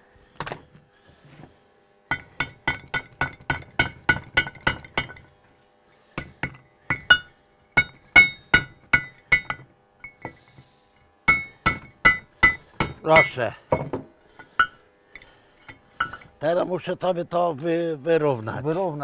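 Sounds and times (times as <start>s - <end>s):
hammer striking steel: 2.1s - 5.3s, 6.2s - 10.4s, 11.2s - 16.3s.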